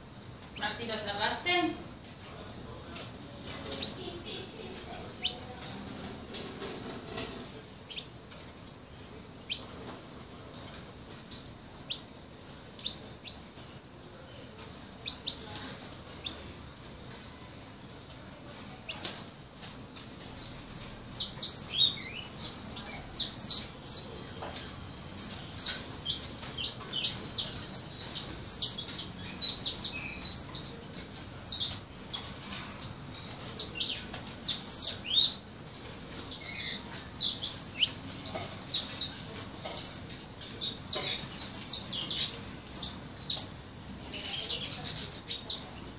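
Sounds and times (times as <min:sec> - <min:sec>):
young songbird chirping and trilling: 0:03.6 - 0:04.5, 0:05.2 - 0:05.5, 0:07.9 - 0:08.1, 0:09.5 - 0:09.7, 0:11.8 - 0:12.1, 0:12.8 - 0:13.4, 0:15.0 - 0:17.0, 0:18.9 - 0:45.9.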